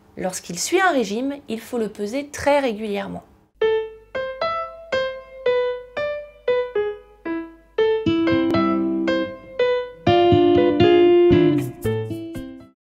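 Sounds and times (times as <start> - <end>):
melody of short fading notes: 3.6 - 11.9
held chords: 3.6 - 12.6.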